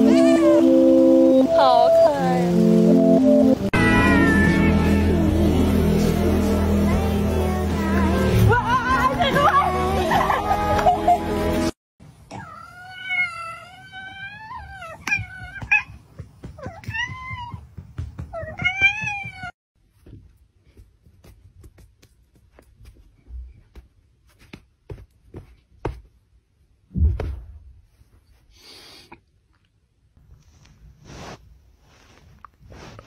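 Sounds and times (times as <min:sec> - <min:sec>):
cat meowing: 0:03.8 - 0:05.5, 0:12.3 - 0:15.9
thump: 0:26.9 - 0:27.7.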